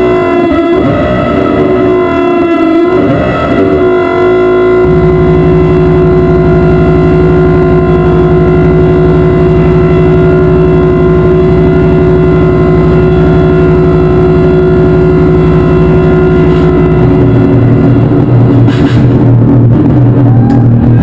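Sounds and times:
electronic drone of held tones: 0:00.0 - 0:21.0
fast buzzing low pulse: 0:00.0 - 0:21.0.

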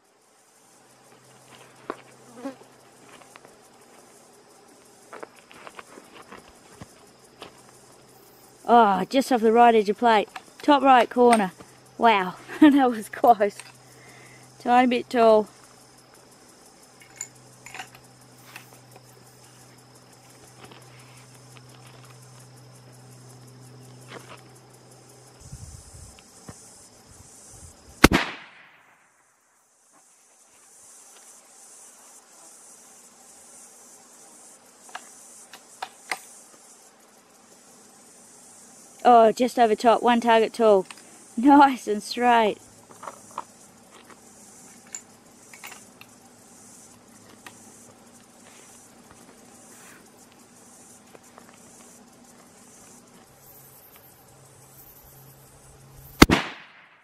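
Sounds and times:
insects buzzing: 0:00.0 - 0:57.0
steady high hiss: 0:00.0 - 0:57.0
rifle shot: 0:28.0 - 0:29.0, 0:56.2 - 0:57.0.

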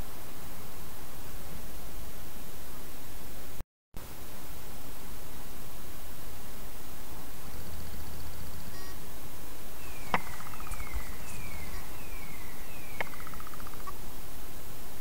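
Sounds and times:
recording hiss: 0:00.0 - 0:15.0.

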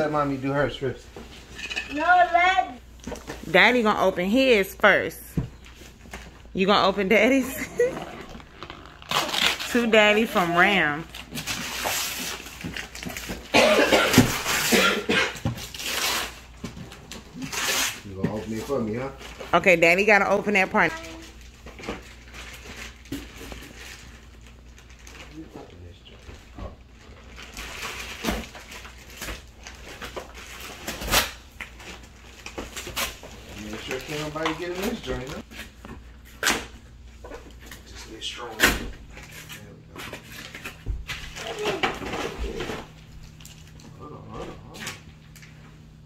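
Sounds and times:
wrapping paper ripping: 0:08.0 - 0:13.5, 0:15.6 - 0:16.6, 0:17.3 - 0:19.5, 0:27.1 - 0:35.5
cardboard box being torn open: 0:08.2 - 0:09.9.

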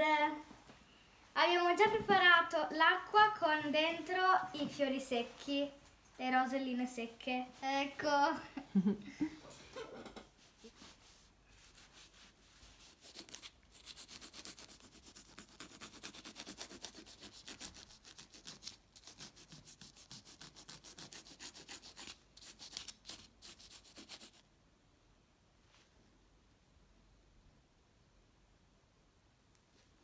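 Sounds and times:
nail file rasping: 0:12.9 - 0:24.4.

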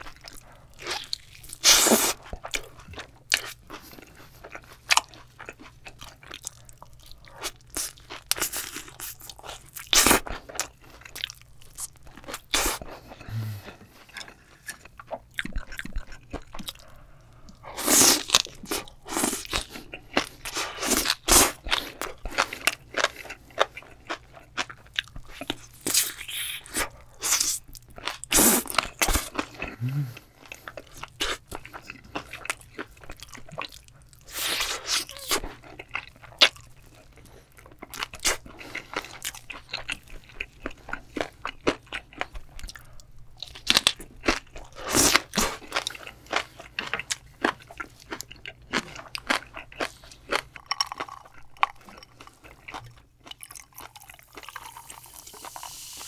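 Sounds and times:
chewing: 0:00.0 - 0:55.7
crunchy bites of fried chicken: 0:37.7 - 0:54.7.

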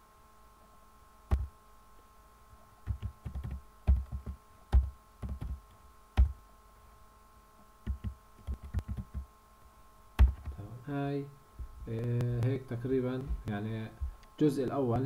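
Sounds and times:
computer keyboard keystrokes: 0:02.8 - 0:05.6, 0:07.9 - 0:09.3, 0:10.2 - 0:10.6.

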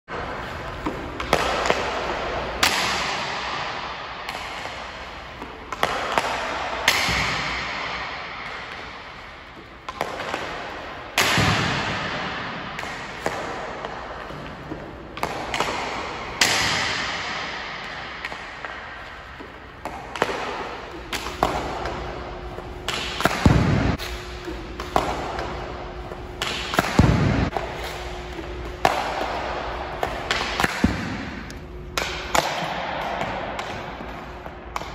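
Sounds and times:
hockey stick taps: 0:00.6 - 0:03.7, 0:04.3 - 0:12.1, 0:12.7 - 0:34.9
hockey puck shot cracks: 0:01.2 - 0:05.0, 0:22.8 - 0:24.2.

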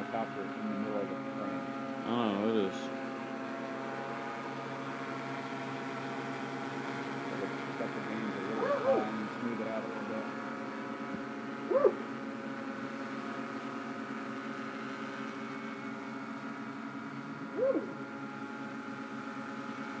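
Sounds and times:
drone motors humming: 0:00.0 - 0:20.0
short rising and falling calls: 0:17.5 - 0:18.0.

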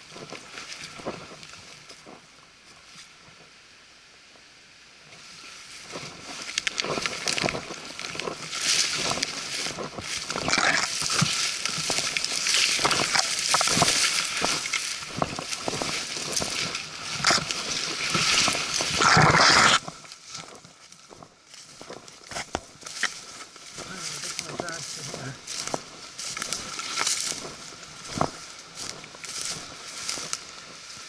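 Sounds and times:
branches rustling against camera: 0:00.0 - 0:31.0
twigs snapping: 0:05.9 - 0:30.5.

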